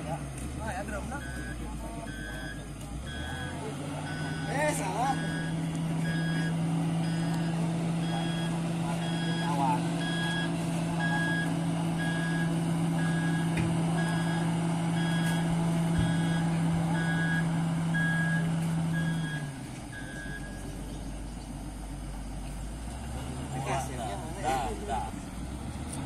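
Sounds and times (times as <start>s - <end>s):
diesel engine droning: 0.0s - 26.0s
backup alarm beeping: 1.0s - 20.7s.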